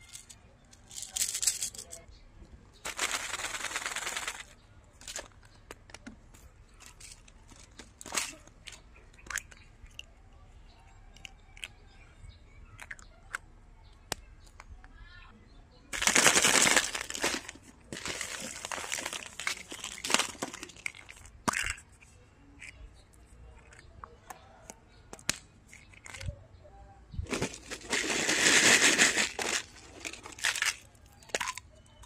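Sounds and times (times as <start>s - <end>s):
plastic capsules clicking: 0.0s - 2.0s, 2.8s - 10.1s, 12.8s - 13.4s, 16.0s - 23.9s, 24.6s - 26.4s, 27.3s - 32.0s
plastic packaging crinkling: 2.9s - 4.5s, 16.0s - 21.7s, 27.3s - 31.6s.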